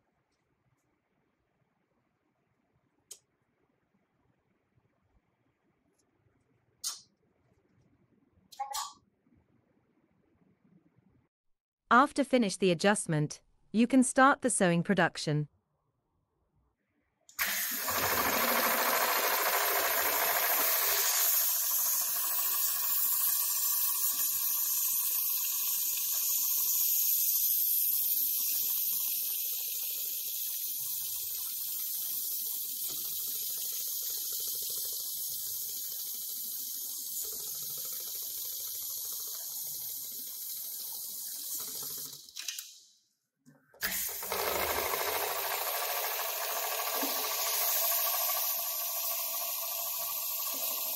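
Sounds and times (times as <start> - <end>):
sewing machine stitching: 17.4 - 24.4, 43.8 - 50.9.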